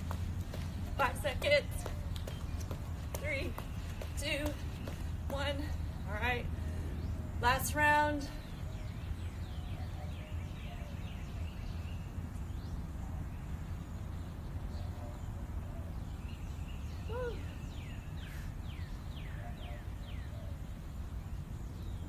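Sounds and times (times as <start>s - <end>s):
low outdoor rumble: 0.0s - 15.2s.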